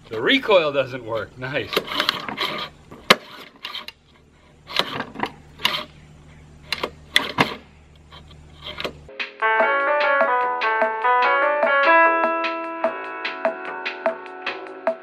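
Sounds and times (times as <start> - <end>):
plucked-string and keyboard music: 9.1 - 15.0.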